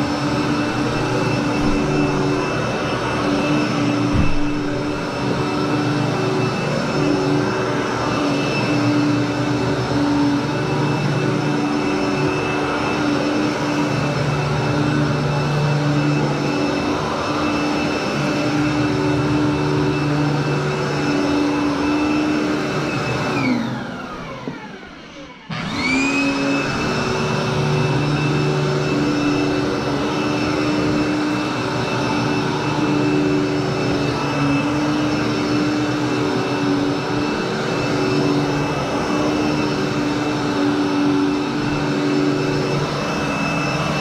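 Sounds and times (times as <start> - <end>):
vacuum cleaner running: 0.0 - 44.0
knock: 4.1 - 5.0.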